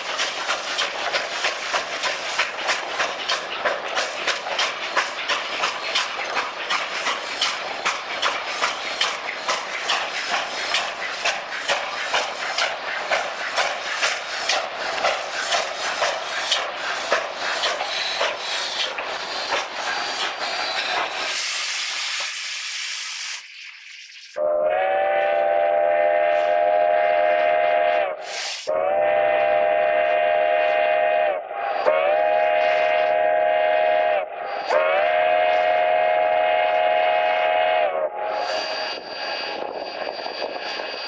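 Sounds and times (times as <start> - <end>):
steam hissing loudly: 0.0 - 41.0
chime steam whistle blasts: 24.4 - 41.0.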